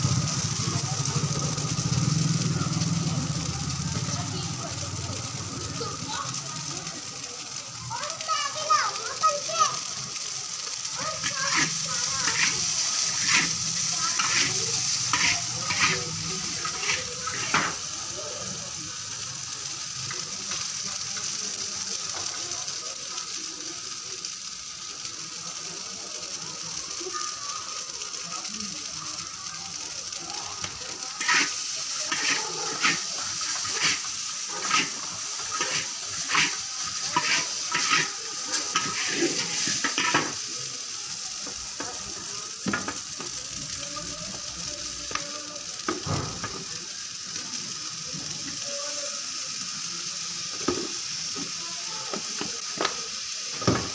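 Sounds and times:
noodles sizzling in wok: 0:00.0 - 0:53.9
metal spatulas scraping wok: 0:11.2 - 0:17.8, 0:31.2 - 0:40.5.

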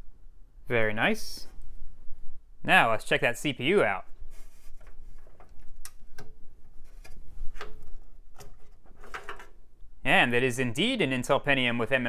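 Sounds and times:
light scraping: 0:04.3 - 0:05.6.

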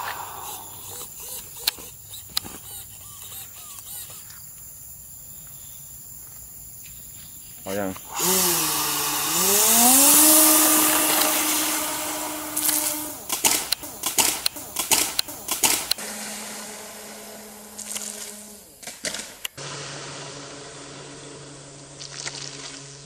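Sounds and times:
electric motor whine: 0:00.0 - 0:04.5, 0:08.0 - 0:23.0
sharp clicks and knocks: 0:12.6 - 0:16.0.

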